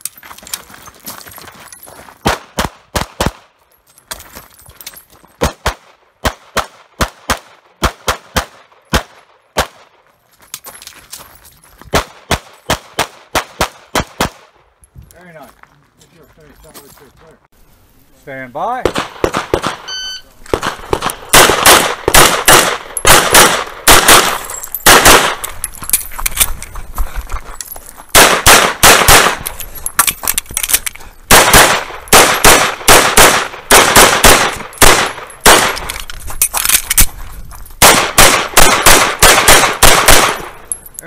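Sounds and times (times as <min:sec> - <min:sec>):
rapid pistol fire: 0:18.8 - 0:19.8, 0:20.5 - 0:25.4, 0:28.2 - 0:29.4, 0:31.3 - 0:35.8, 0:37.8 - 0:40.6
shot timer beep: 0:19.9 - 0:20.3.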